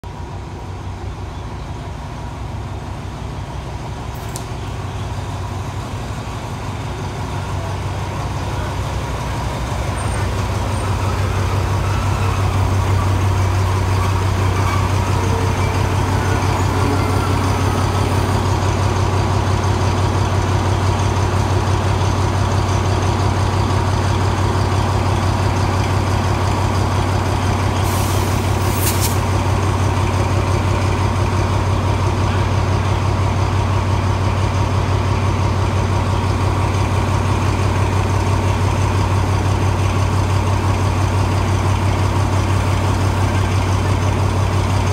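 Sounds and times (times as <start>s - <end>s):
locomotive engine idling: 0.1s - 44.9s
air release hiss: 27.8s - 29.3s.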